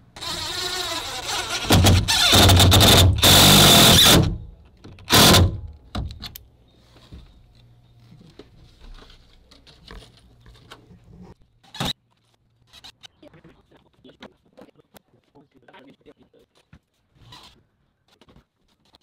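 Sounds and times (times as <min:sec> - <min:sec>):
impact driver driving screw: 0:00.2 - 0:04.4, 0:05.0 - 0:05.6.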